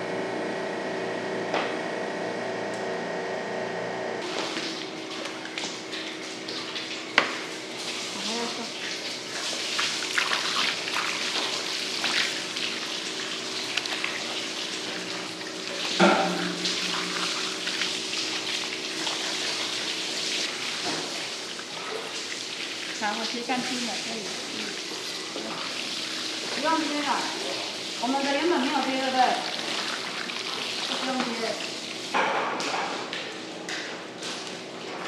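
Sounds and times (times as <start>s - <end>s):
hose water spraying and splashing: 4.2s - 32.2s.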